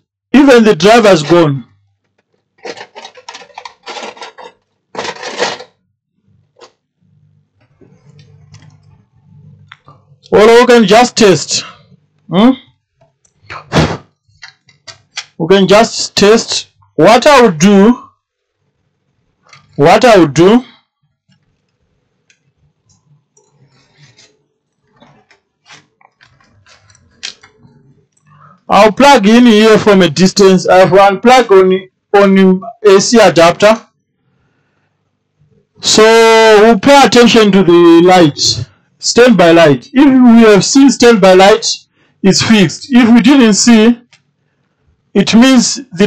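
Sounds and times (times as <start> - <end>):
hands handling circuit board: 2.1 - 5.7, 14.4 - 15.4
rattling clicks of tools: 2.2 - 5.8.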